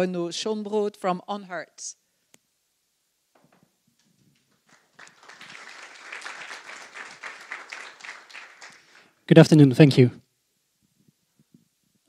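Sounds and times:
audience applause: 0:04.6 - 0:09.2.

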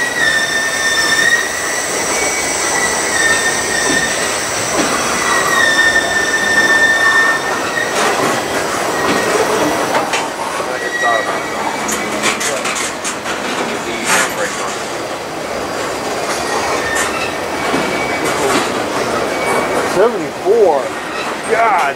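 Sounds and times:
high-pitched wheel squeal: 0:00.0 - 0:09.5, 0:10.4 - 0:13.0, 0:16.3 - 0:18.5, 0:19.2 - 0:19.9
steel wheels rumbling on rail: 0:00.0 - 0:21.9.

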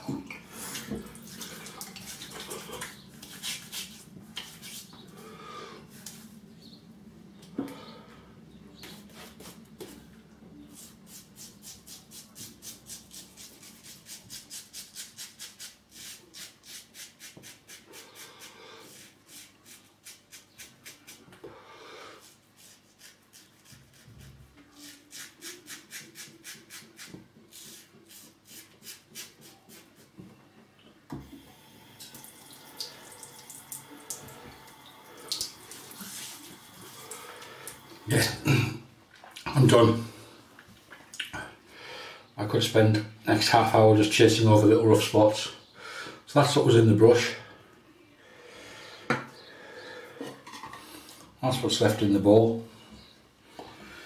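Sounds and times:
hand rubbing skin: 0:00.7 - 0:05.1, 0:35.8 - 0:37.0
razor scraping lathered stubble: 0:01.9 - 0:05.0, 0:10.8 - 0:21.2, 0:22.2 - 0:29.9.

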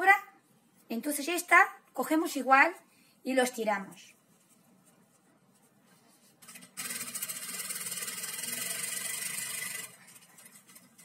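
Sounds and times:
sewing machine stitching: 0:06.4 - 0:11.0.

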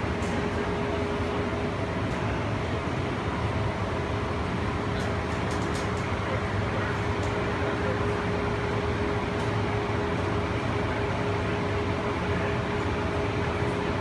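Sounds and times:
people-mover car running noise: 0:00.0 - 0:14.0.

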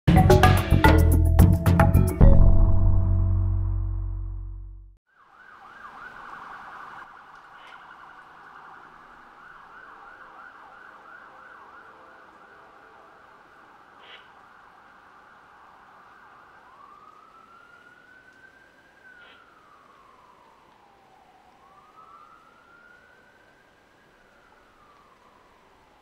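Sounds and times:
intro music: 0:00.1 - 0:05.0
siren warbling: 0:16.4 - 0:25.6.

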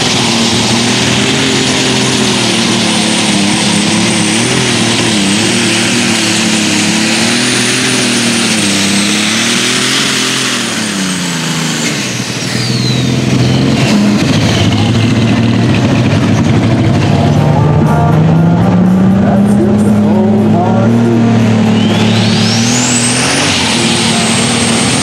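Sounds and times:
diesel engine running hard: 0:00.0 - 0:25.0
high turbo whine: 0:00.0 - 0:25.0.

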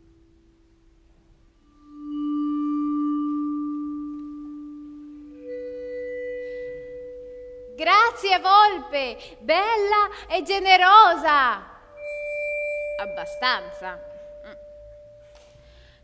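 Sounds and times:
vibraphone notes ringing: 0:01.6 - 0:09.9, 0:11.8 - 0:16.0.

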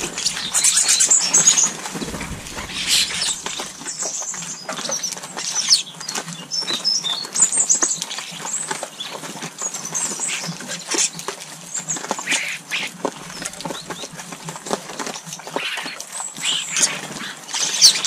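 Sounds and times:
birds chirping and chattering: 0:00.0 - 0:05.0, 0:12.3 - 0:14.3
wing flutters: 0:00.0 - 0:05.5, 0:13.1 - 0:14.6.

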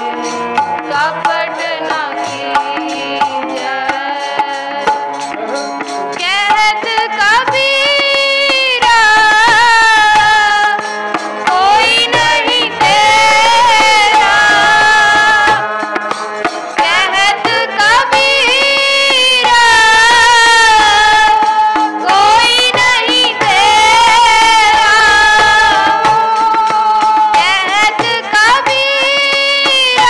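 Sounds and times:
harmonium chords: 0:00.0 - 0:30.0
tabla strokes: 0:00.0 - 0:30.0
person singing: 0:11.5 - 0:30.0.

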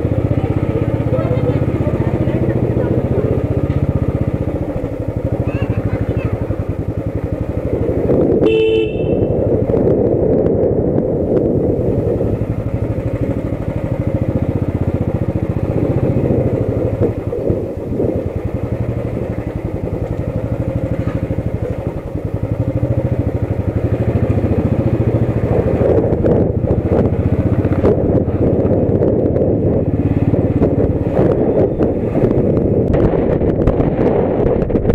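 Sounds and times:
motorcycle engine running: 0:00.0 - 0:34.9
short horn beep: 0:08.4 - 0:09.5.

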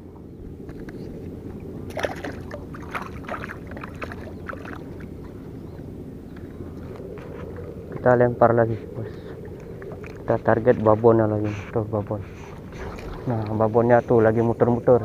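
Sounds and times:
fish splashing in shallow water: 0:00.8 - 0:05.5, 0:09.3 - 0:10.4, 0:12.5 - 0:13.4.

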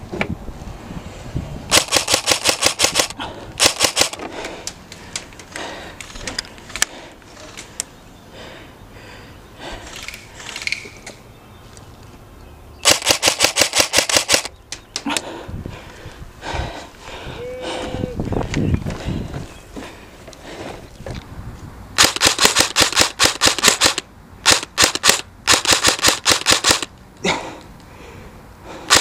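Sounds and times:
airsoft rifle rapid fire: 0:01.7 - 0:04.2, 0:12.8 - 0:14.5, 0:22.0 - 0:26.9.

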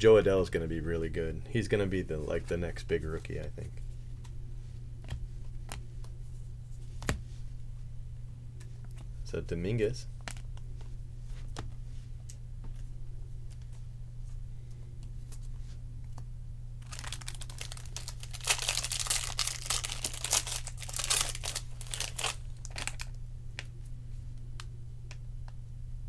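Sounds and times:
steady low hum: 0:00.0 - 0:26.0
plastic wrapper crinkling: 0:16.8 - 0:23.2.

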